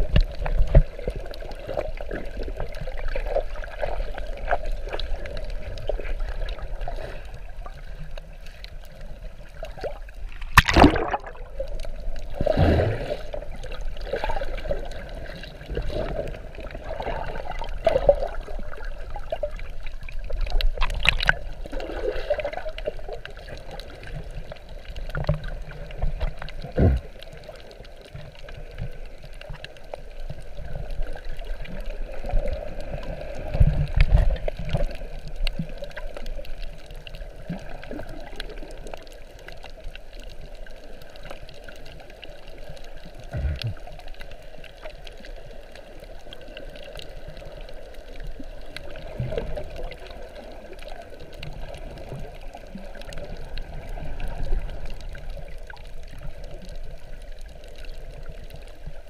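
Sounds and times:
muffled underwater gurgling: 0.0s - 59.0s
sharp knocks or splashes: 10.4s - 11.4s.

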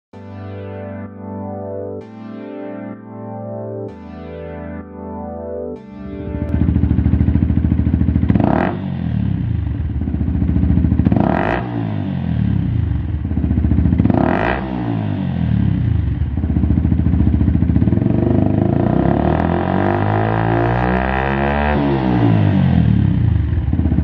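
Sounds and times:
motorcycle engine revving: 6.1s - 24.0s.

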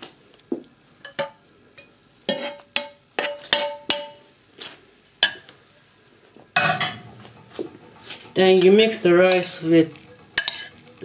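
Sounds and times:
metal spoon clinking on ceramic bowl: 10.4s - 10.8s.

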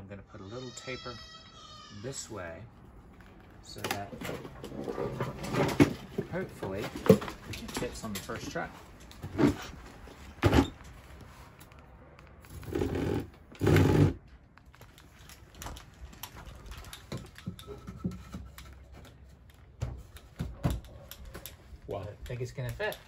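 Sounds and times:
wood scraping rush: 3.6s - 11.2s, 12.4s - 14.3s.

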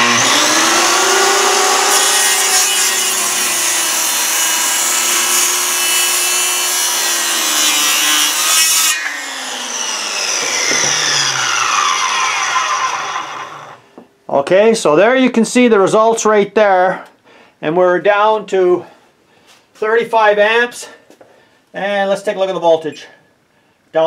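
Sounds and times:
circular saw cutting wood: 0.0s - 13.8s.

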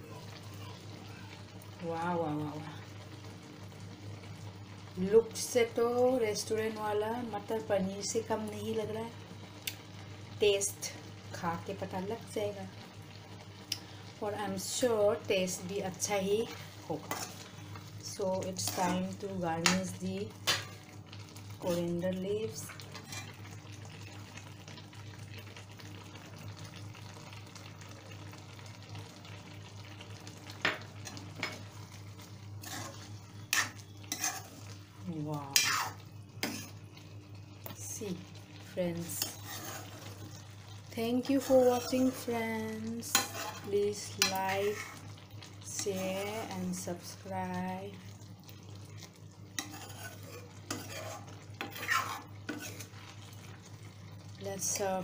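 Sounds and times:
curry simmering with faint sizzle: 0.0s - 55.0s
metal ladle scraping pan: 22.9s - 23.4s, 32.6s - 34.7s, 35.5s - 36.8s, 39.1s - 40.2s, 41.3s - 42.3s, 43.0s - 45.0s, 49.6s - 53.0s
metal spoon stirring thick curry: 32.6s - 34.6s, 39.2s - 40.2s, 43.1s - 43.7s, 49.6s - 53.0s.

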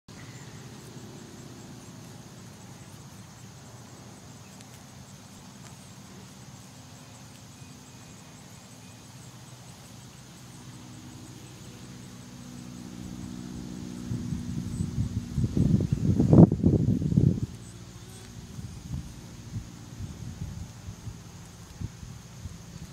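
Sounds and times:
distant motor running: 9.3s - 22.7s.

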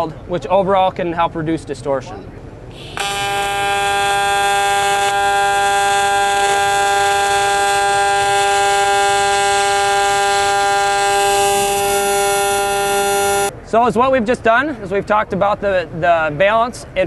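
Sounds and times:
welding arc buzzing: 2.7s - 13.5s.

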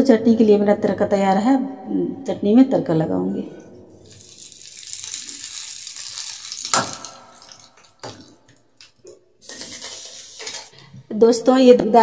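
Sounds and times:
hot oil sizzling: 4.0s - 8.2s, 9.4s - 10.8s.

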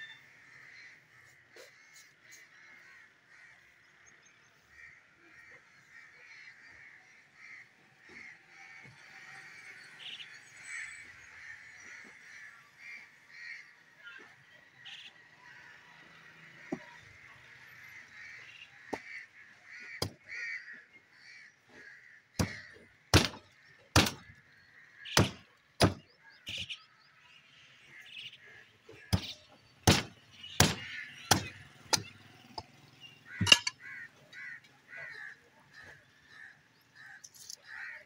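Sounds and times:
crows cawing: 0.1s - 14.3s, 14.9s - 27.1s, 27.9s - 32.1s, 33.1s - 38.0s
cleaver chopping into bone: 22.4s - 22.6s, 23.2s - 23.4s, 24.0s - 24.2s, 25.2s - 26.0s, 29.1s - 32.1s.

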